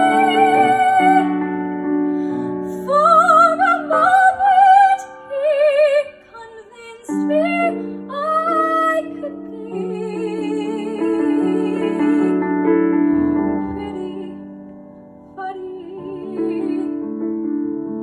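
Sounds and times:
woman singing ballad with vibrato: 0.0s - 1.4s, 2.4s - 12.5s, 13.5s - 14.6s, 15.3s - 17.2s
piano accompaniment: 0.0s - 18.0s.

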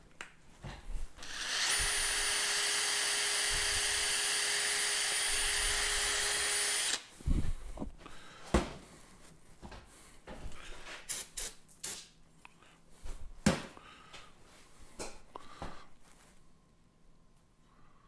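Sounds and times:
cordless drill whining: 1.2s - 7.0s.

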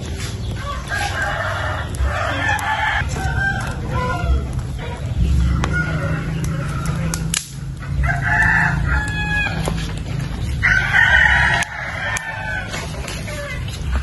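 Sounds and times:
rooster crowing: 0.6s - 4.6s, 5.4s - 9.9s, 10.6s - 13.6s
low rumble: 1.8s - 14.0s
sharp clicks: 6.4s - 7.8s.

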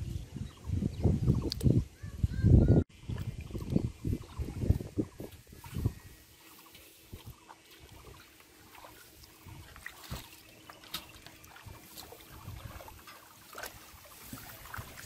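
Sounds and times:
feet wading in shallow water: 3.0s - 15.0s.

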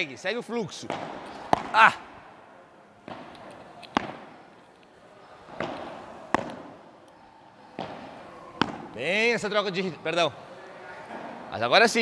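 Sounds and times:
balls bouncing on court: 0.8s - 2.2s, 3.0s - 4.6s, 5.2s - 6.9s, 7.7s - 9.6s
balls hit with rackets: 0.8s - 2.4s, 3.0s - 9.6s.

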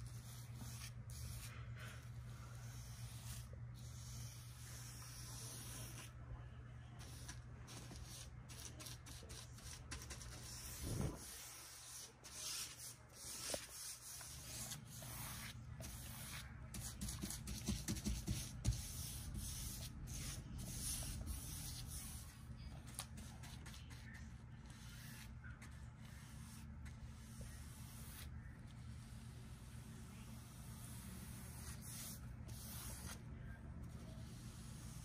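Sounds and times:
paintbrush bristles swishing: 30.7s - 33.2s.

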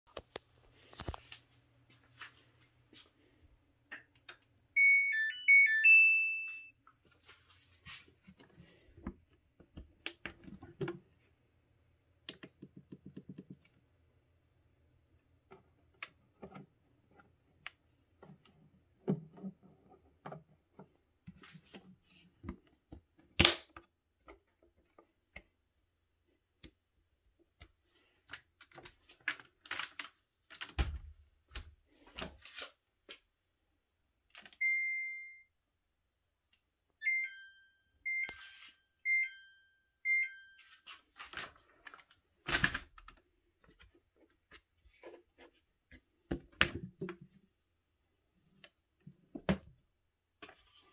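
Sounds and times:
short two-pitch alert beeps: 4.8s - 6.7s, 34.6s - 35.5s, 37.0s - 40.8s
washer long beep: 4.8s - 6.7s, 34.5s - 35.5s, 37.0s - 40.9s.

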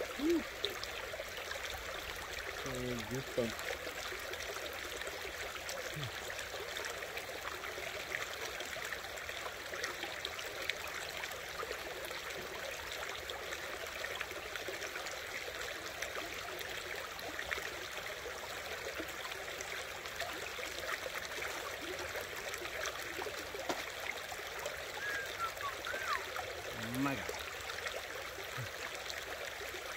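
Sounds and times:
creek water running: 0.0s - 29.9s
faint clicks and splashes: 20.0s - 25.2s.

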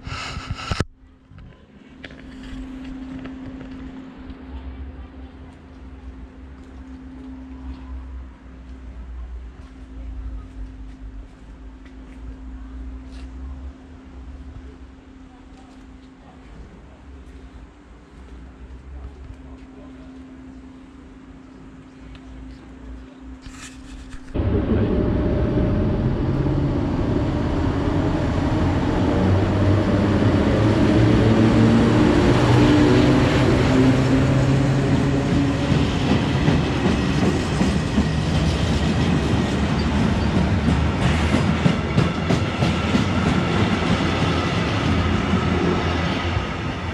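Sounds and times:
low hum: 0.0s - 41.1s
train wheels rumbling on rail: 23.5s - 46.9s.

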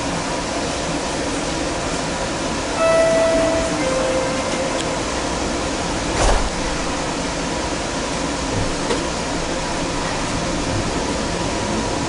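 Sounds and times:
train interior hum and hiss: 0.0s - 12.0s
low thump: 6.1s - 6.9s.

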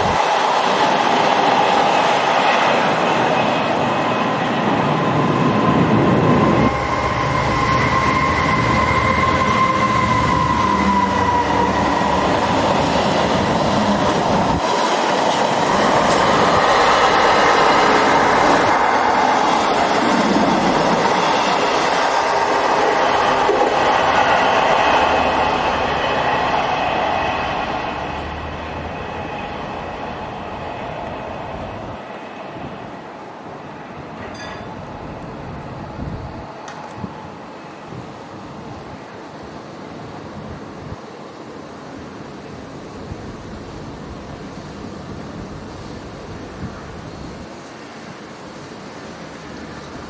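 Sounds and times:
wheels whining on rails: 0.0s - 38.0s
freight train passing: 0.0s - 50.0s.

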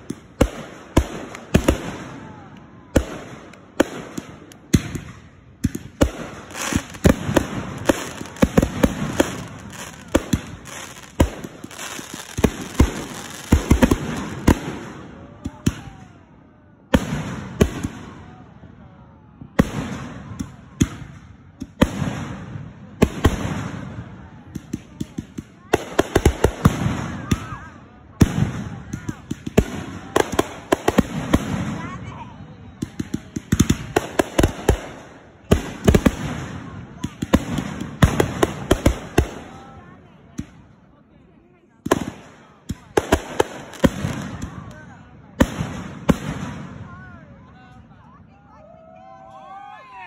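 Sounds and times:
firework launches and bursts: 2.9s - 15.8s.

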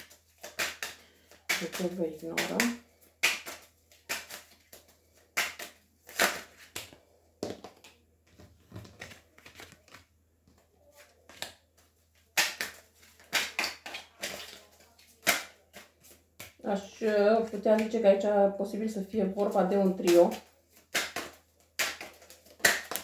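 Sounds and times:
cards slapping on table: 0.0s - 8.0s, 12.3s - 16.6s, 20.1s - 23.0s.

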